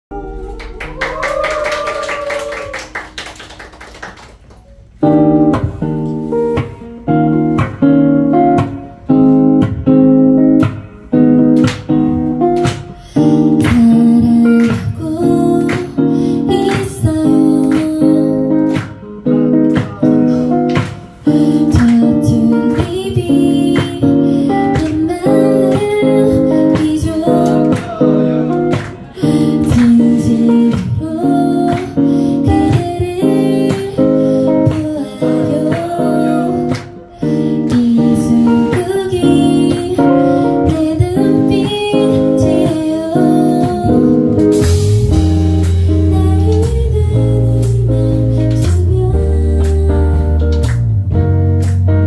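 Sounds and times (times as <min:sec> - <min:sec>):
audience applause: 0:00.2 - 0:04.7.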